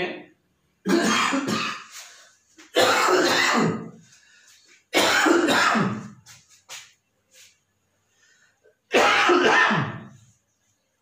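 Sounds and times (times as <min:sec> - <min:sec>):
man coughing: 0:00.8 - 0:02.1, 0:02.7 - 0:04.0, 0:04.9 - 0:06.2, 0:08.9 - 0:10.1.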